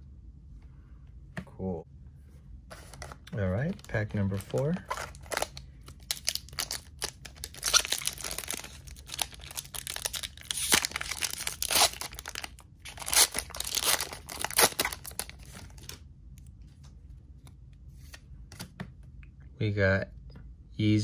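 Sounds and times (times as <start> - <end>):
foil wrapper crinkling and tearing: 3.6 - 16.0.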